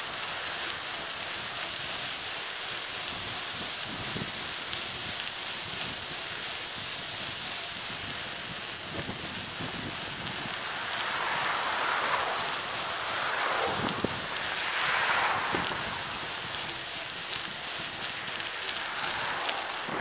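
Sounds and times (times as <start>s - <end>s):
wind rushing over microphone: 6.7s - 20.0s.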